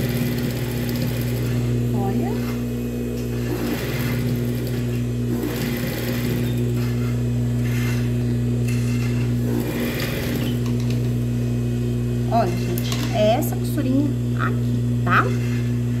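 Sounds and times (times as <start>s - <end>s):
sewing machine fast stitching: 0.0s - 1.6s, 3.4s - 6.7s, 9.4s - 10.7s
sewing machine motor humming: 0.0s - 2.6s, 3.2s - 11.2s.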